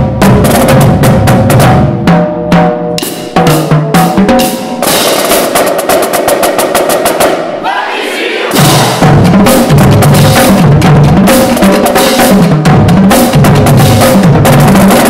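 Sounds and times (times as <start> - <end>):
marching drum line: 0.0 - 15.0
fast snare roll: 4.8 - 7.6.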